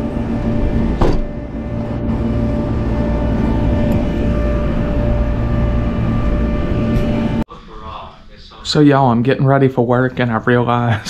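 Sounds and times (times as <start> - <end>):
car engine rumbling: 0.0 - 7.4
constant hum: 0.0 - 11.0.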